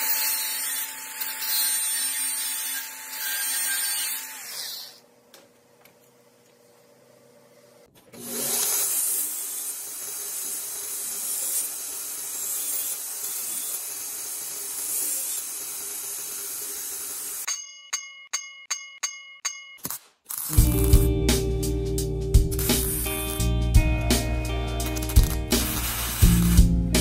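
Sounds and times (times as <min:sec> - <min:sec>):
belt grinder grinding steel: 0:00.0 - 0:05.0, 0:08.2 - 0:17.5, 0:20.3 - 0:21.1, 0:22.5 - 0:23.6, 0:24.8 - 0:26.8.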